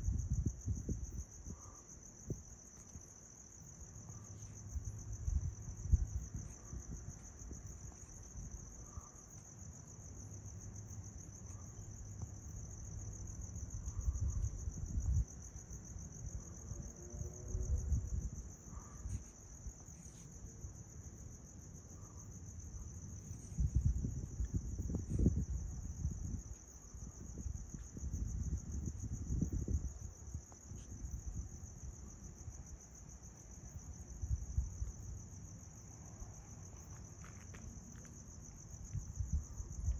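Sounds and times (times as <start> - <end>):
wind buffeting microphone: 0.0 - 2.6, 4.6 - 8.8, 10.8 - 19.9, 22.4 - 35.8, 38.2 - 39.9
crickets trilling: 0.0 - 39.9.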